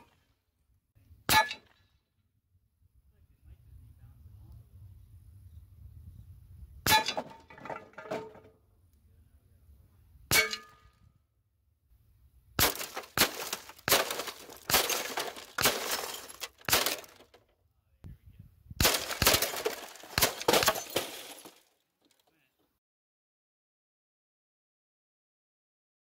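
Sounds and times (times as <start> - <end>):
slugs clanging on metal: 12.6 - 17.3
slugs crashing into plastic and glass: 12.6 - 17.4, 18.8 - 21.6.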